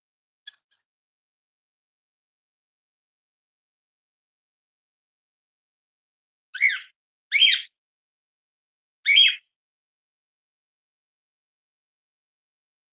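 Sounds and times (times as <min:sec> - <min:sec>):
cockatiel chirping: 0:06.6 - 0:07.7, 0:09.1 - 0:09.4.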